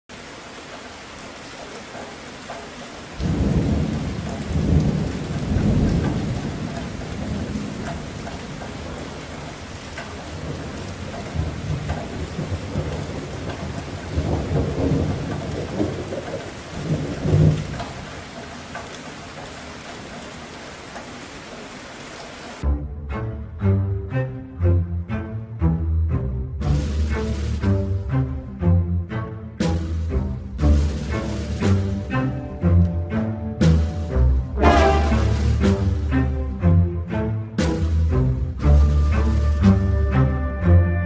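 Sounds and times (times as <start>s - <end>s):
hiss of wind and rain: 0.1s - 22.6s, 26.6s - 40.8s
wind buffeting microphone: 3.2s - 18.4s.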